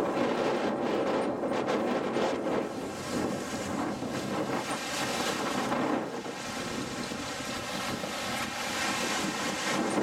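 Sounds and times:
wind buffeting microphone: 0.0 - 10.0
surf washing onto rocks: 2.3 - 10.0.

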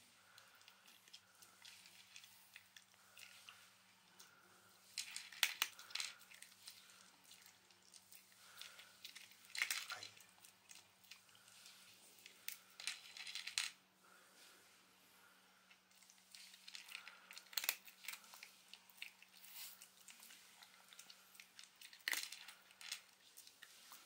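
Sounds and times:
dog crunching kibble: 16.0 - 23.7.

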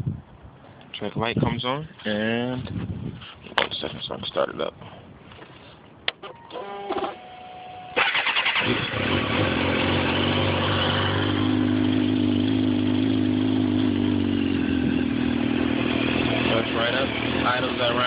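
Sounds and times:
starter motor whirring: 6.3 - 7.2, 7.9 - 9.4
motorcycle engine idling: 8.9 - 18.0.

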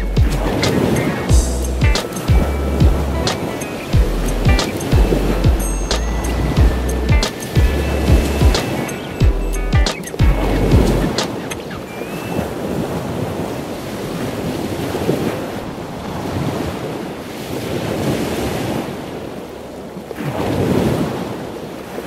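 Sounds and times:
wind rushing over microphone: 0.0 - 19.5
water noise: 0.0 - 22.0.

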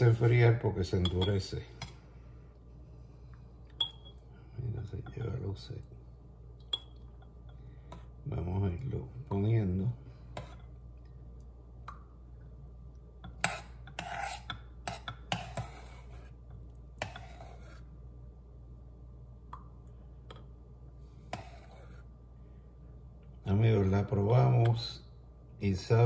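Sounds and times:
metal spoon scraping a saucepan: 13.3 - 16.4, 17.0 - 17.8.

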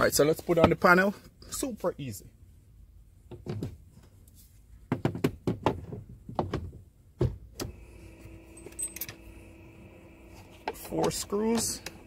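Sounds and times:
faint steady hum: 7.5 - 12.0.

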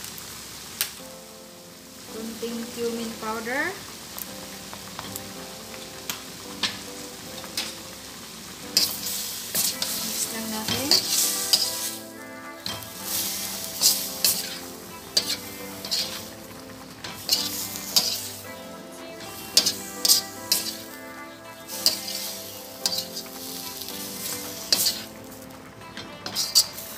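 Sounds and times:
food sizzling: 0.0 - 26.9
metal spoon scraping wok: 8.8 - 16.4, 17.0 - 18.5, 19.6 - 21.0, 21.7 - 25.2, 26.2 - 26.9.

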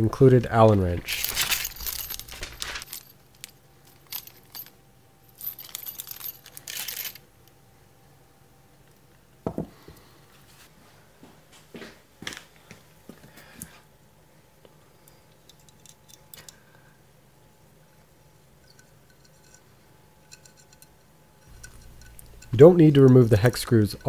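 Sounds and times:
metal hardware jingling in plastic bag: 1.0 - 4.7, 5.4 - 7.2, 21.5 - 24.0.

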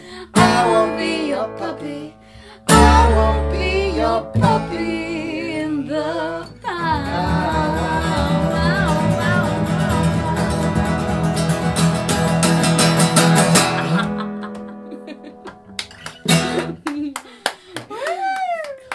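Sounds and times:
woman singing folk song: 0.0 - 13.6
strummed acoustic guitar: 0.3 - 2.0, 2.6 - 16.8
plucked double bass: 2.7 - 14.4.

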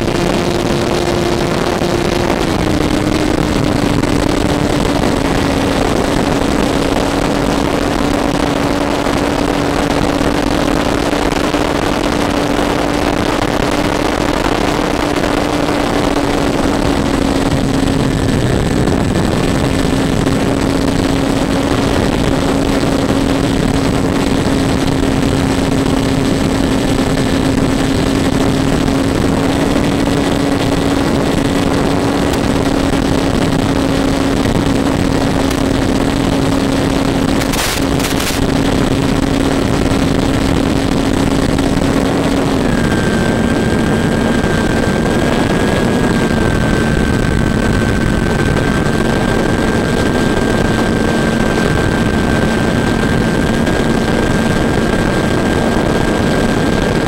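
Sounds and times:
model airplane motor and propeller: 0.0 - 57.0
wind rush on microphone: 0.0 - 57.0
brief crackles: 37.4 - 38.5.

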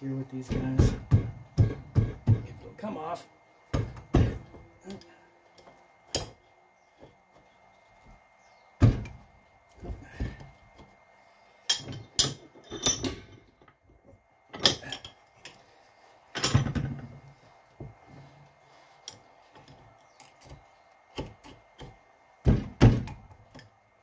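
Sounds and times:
metal tools knocking on metal: 11.7 - 13.8, 16.4 - 17.1.

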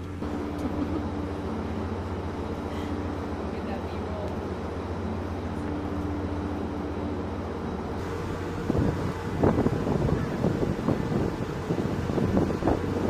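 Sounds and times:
steady low hum: 0.0 - 13.0
wind buffeting microphone: 8.0 - 13.0.

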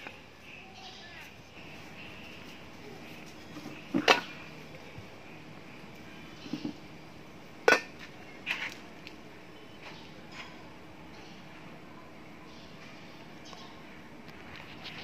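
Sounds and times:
pot lid clanking: 7.6 - 7.9
metal pot clanking on stone: 7.6 - 8.0.

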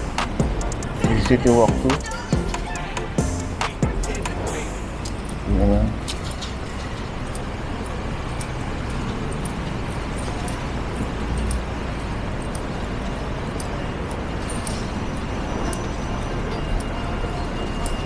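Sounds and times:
street traffic hum: 0.0 - 18.0
vehicle passing: 0.0 - 18.0.

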